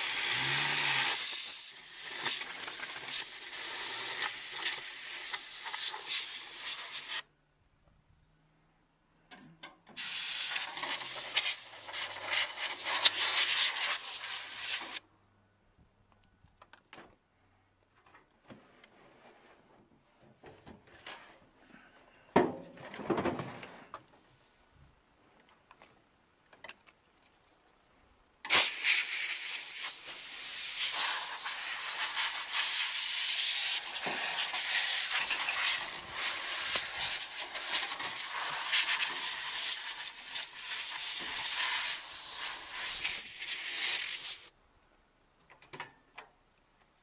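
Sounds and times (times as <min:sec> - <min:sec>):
compressed air hissing: 0:00.0 - 0:07.2, 0:10.0 - 0:15.0, 0:28.5 - 0:44.5.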